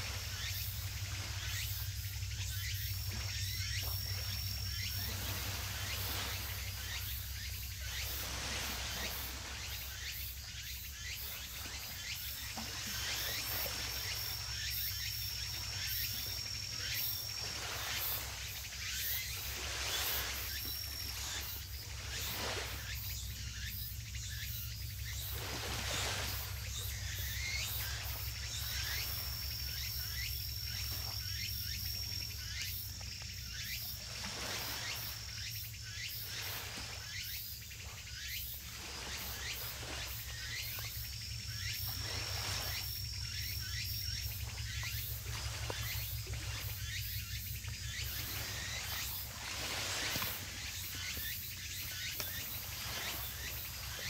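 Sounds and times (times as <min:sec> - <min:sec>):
steady low hum: 0:00.0 - 0:08.1
high thin insect trill: 0:00.0 - 0:54.0
insects chirping: 0:00.0 - 0:54.0.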